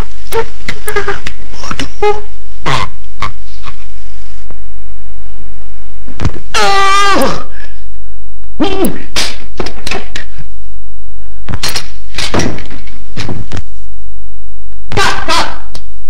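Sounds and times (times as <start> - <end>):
low hum: 0.0 - 16.0
short pitched cry: 6.5 - 7.7
wooden furniture thumping and clattering: 11.6 - 13.6.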